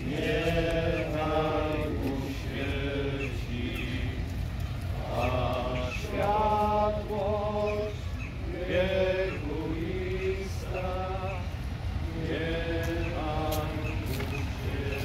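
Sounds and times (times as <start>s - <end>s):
men singing religious chant: 0.0s - 15.0s
steady low rumble: 0.0s - 15.0s.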